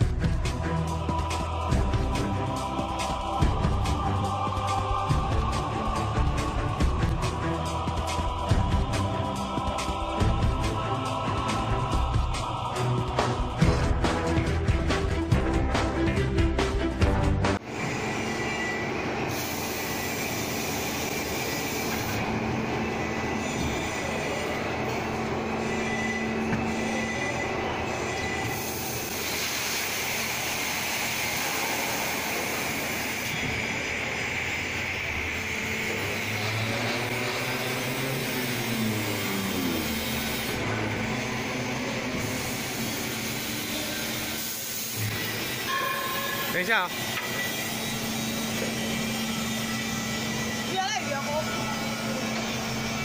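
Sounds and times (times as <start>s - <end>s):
high machine whine: 17.6s - 53.0s
molding machine running: 17.6s - 53.0s
burst of hiss: 19.3s - 22.2s, 28.5s - 33.7s.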